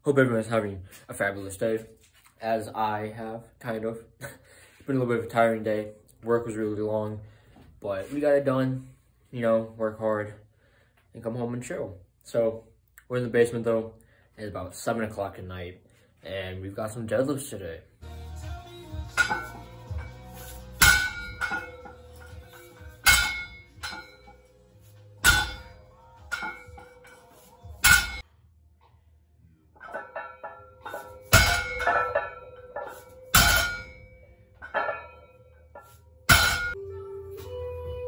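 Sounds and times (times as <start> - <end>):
background music: 18.0 - 28.3, 36.2 - 38.0
barbell plates clanging on floor: 19.1 - 24.4, 25.2 - 28.2, 29.8 - 36.8.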